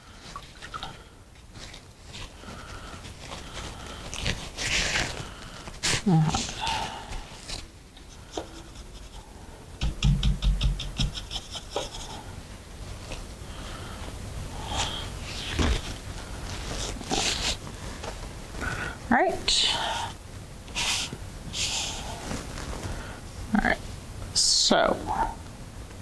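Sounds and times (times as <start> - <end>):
paper towel rustling: 0.0 - 9.1, 14.8 - 18.8, 20.8 - 23.2
rapid brush taps: 9.8 - 12.2.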